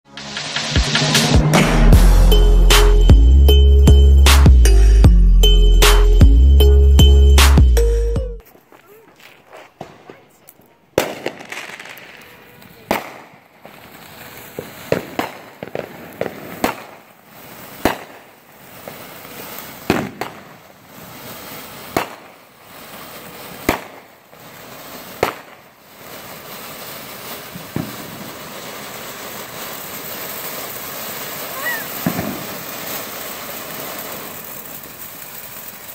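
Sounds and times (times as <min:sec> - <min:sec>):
firework fountain hissing: 0:08.4 - 0:35.9
firework sharp cracks: 0:08.5 - 0:35.9.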